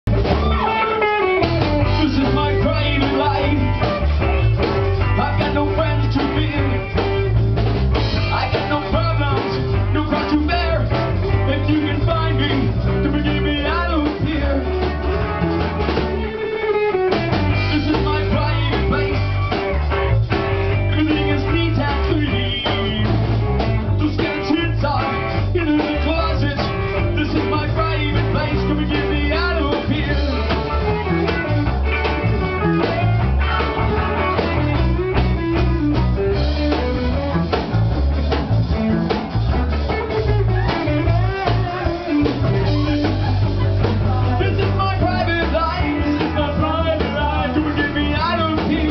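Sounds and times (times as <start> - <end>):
drum kit: 0.0 - 48.9
electric guitar: 0.0 - 48.9
man singing into a microphone: 1.8 - 4.0, 5.0 - 7.4, 8.2 - 15.2, 17.5 - 19.8, 20.6 - 31.2, 40.4 - 48.9.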